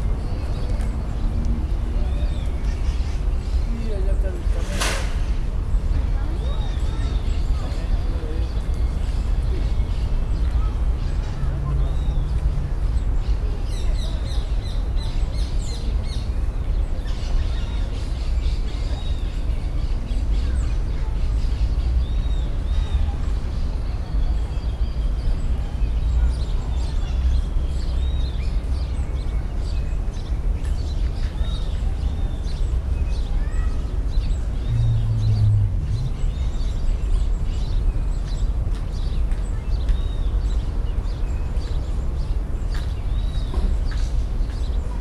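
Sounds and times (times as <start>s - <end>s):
birds chirping: 0.0s - 45.0s
steady low rumble: 34.1s - 40.1s.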